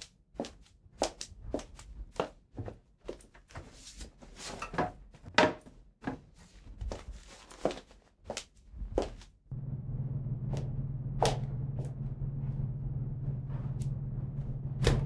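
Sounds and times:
knocks and clicks in kitchen: 9.5s - 15.0s.

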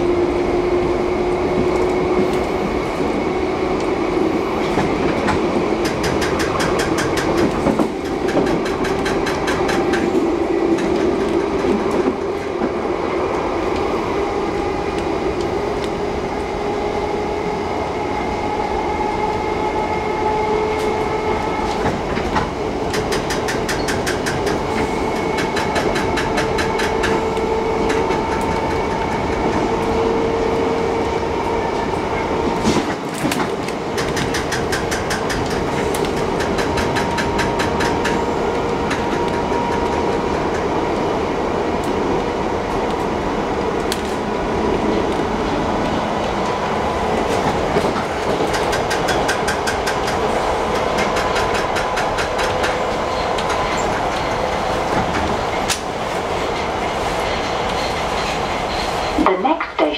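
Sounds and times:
train wheels rumbling on rail: 0.0s - 59.9s
wheels clicking over rail joints: 4.6s - 12.8s, 21.6s - 30.0s, 32.6s - 40.8s, 47.2s - 58.4s.

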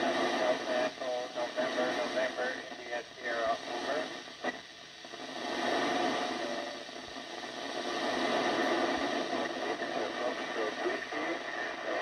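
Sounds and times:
radio static hiss: 0.0s - 12.0s.

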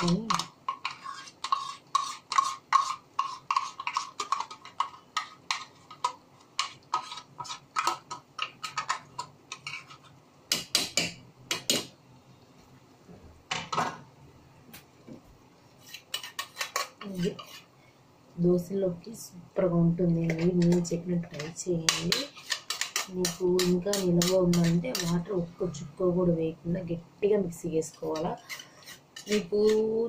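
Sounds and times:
spoon scraping steel jar: 0.0s - 6.0s, 15.8s - 17.7s, 20.4s - 25.3s, 28.1s - 29.9s.

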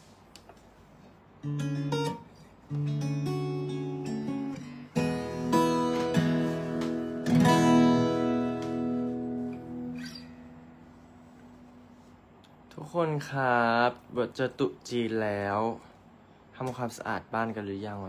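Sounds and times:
acoustic guitar plucked notes: 1.4s - 12.1s
acoustic guitar chords strummed: 1.4s - 12.2s.

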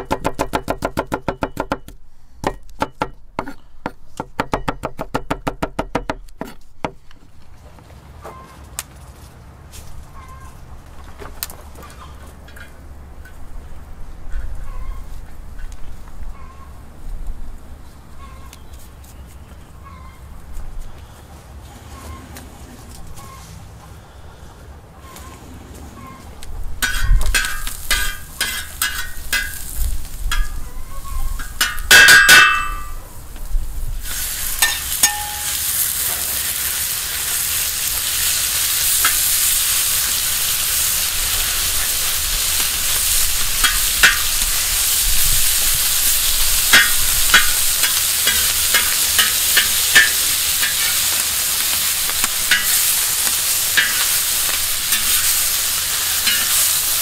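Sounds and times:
metal utensil clinking against pan: 26.8s - 29.6s, 30.3s - 30.6s, 31.4s - 33.0s, 34.6s - 35.6s, 43.6s - 44.3s, 46.8s - 51.0s, 52.5s - 52.8s, 53.8s - 54.2s, 56.2s - 56.7s
stirring taps and scrapes: 26.8s - 29.6s, 46.7s - 51.2s, 52.1s - 55.4s
food sizzling in pan: 26.8s - 31.9s, 33.9s - 57.0s
loud ringing clang: 31.7s - 33.0s, 35.0s - 35.6s.

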